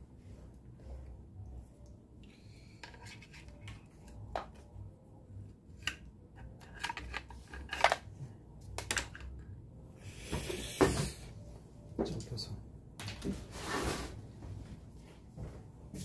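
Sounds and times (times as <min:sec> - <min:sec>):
wire and plug clicks and rustles: 0:05.8 - 0:09.5
rustling scrape: 0:13.4 - 0:14.4.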